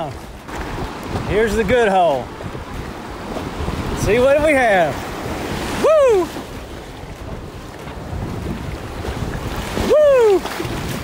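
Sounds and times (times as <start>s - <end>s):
whitewater rushing: 3.0s - 6.7s, 8.9s - 11.0s
person whooping: 5.8s - 6.4s, 9.8s - 10.6s.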